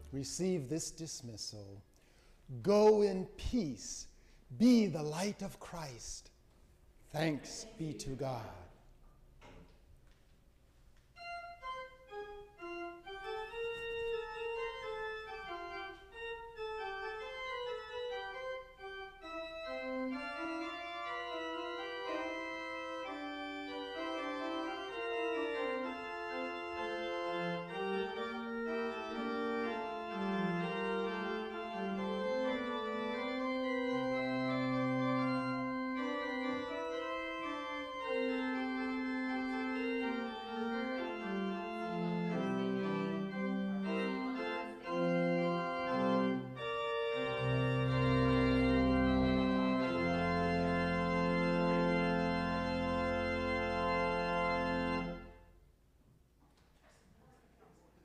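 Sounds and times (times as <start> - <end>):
organ playing slow chords: 0.0 - 6.3, 11.2 - 55.6.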